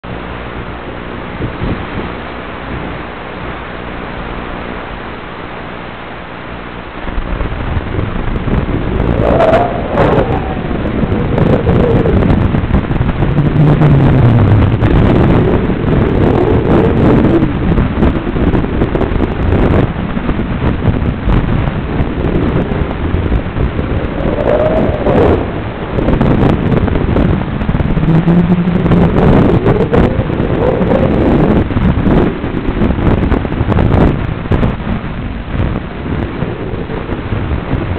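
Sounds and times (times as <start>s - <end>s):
static hiss: 0.1s - 37.9s.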